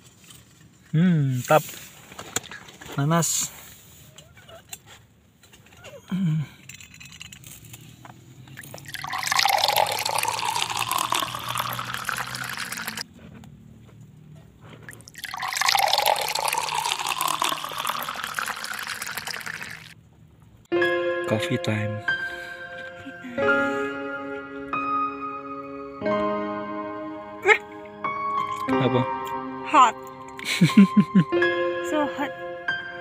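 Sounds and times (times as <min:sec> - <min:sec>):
water pouring into plastic cup: 0:08.6 - 0:13.0, 0:14.9 - 0:20.0.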